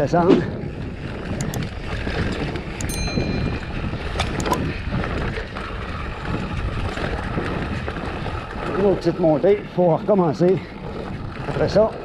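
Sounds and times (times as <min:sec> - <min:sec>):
bike knocking and rattling: 0:00.0 - 0:12.0
wind rumbling on camera: 0:00.0 - 0:12.0.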